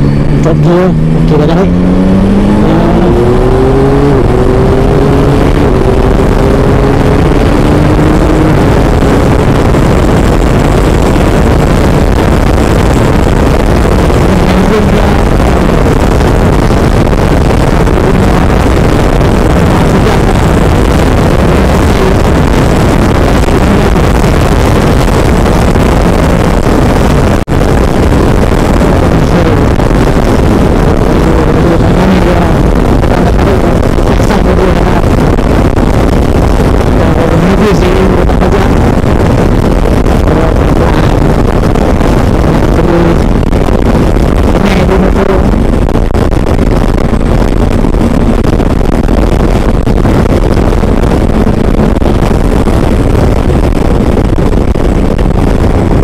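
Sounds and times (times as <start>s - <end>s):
heavy wind rush: 0.0s - 56.0s
motorcycle engine accelerating: 0.0s - 56.0s.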